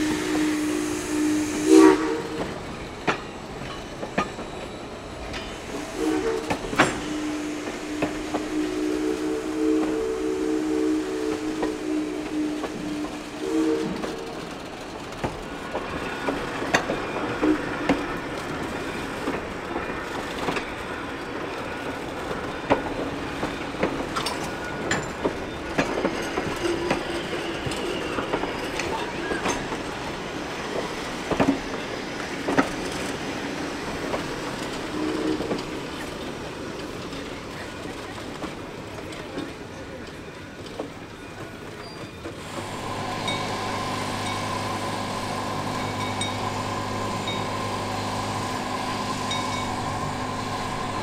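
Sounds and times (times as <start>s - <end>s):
steel wheels rumbling on rails: 0.0s - 51.0s.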